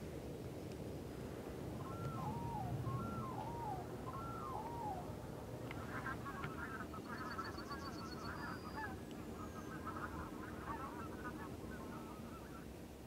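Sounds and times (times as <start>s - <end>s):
geese honking: 5.7s - 12.6s.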